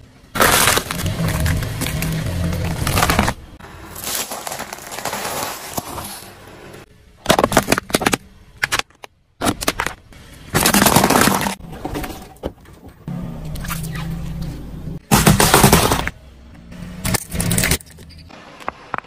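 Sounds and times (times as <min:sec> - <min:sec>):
spiky husk splitting: 0:00.3 - 0:06.2
shells crunching: 0:00.4 - 0:06.3.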